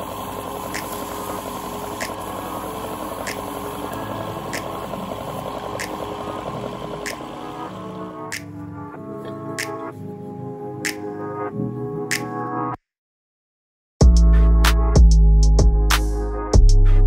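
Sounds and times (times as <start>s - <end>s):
wood lathe running: 0.0s - 8.3s.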